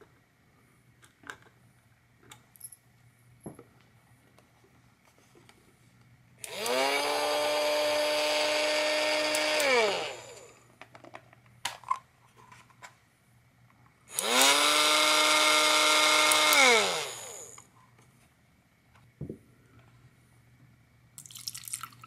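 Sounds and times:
toy motor whirring: 0:06.4 - 0:10.6, 0:14.1 - 0:17.7.

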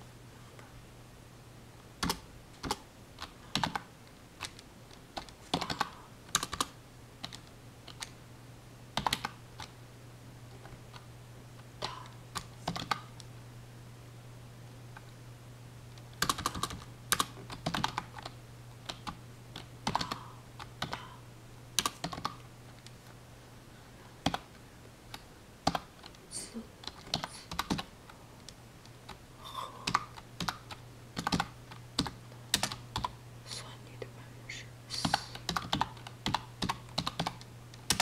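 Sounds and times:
steady low hum: 0:00.0 - 0:38.0
typing on computer keyboard: 0:02.0 - 0:04.6, 0:05.2 - 0:08.2, 0:09.0 - 0:09.7, 0:11.8 - 0:13.2, 0:16.2 - 0:21.1, 0:21.8 - 0:22.4, 0:24.2 - 0:24.5, 0:25.6 - 0:26.2, 0:26.8 - 0:27.9, 0:29.8 - 0:33.2, 0:35.1 - 0:38.0.

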